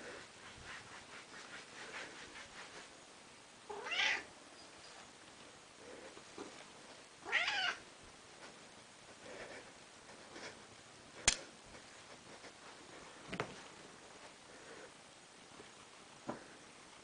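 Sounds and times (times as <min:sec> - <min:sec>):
cat meowing: 0:03.7 - 0:04.3, 0:07.2 - 0:07.8.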